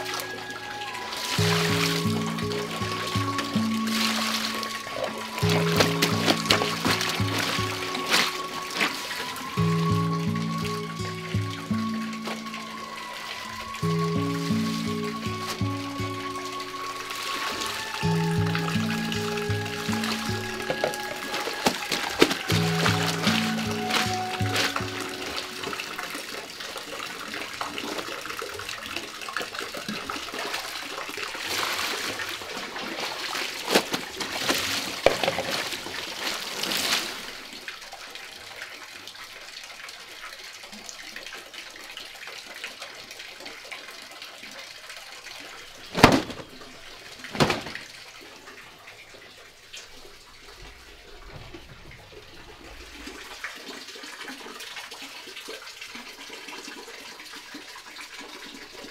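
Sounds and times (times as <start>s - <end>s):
running water: 0.0s - 58.9s.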